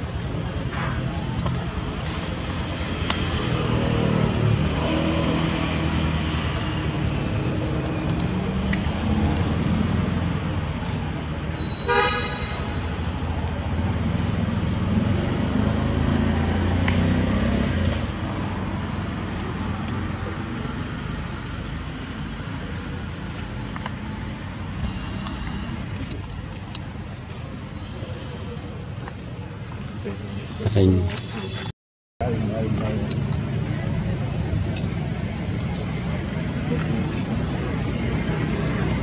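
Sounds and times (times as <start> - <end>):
traffic rumble: 0.0 - 39.0
short horn toot: 11.6 - 12.8.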